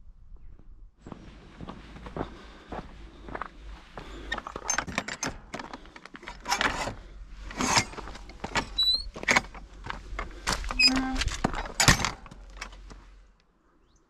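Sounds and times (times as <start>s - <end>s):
footsteps on stony path: 0.5s - 13.2s
gate latch clanking: 10.5s - 12.8s.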